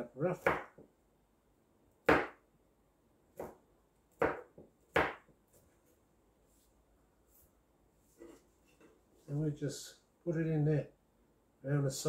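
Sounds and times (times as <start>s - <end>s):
knife chopping on wooden board: 0.4s - 0.9s, 2.0s - 2.4s, 3.4s - 3.6s, 4.2s - 5.3s.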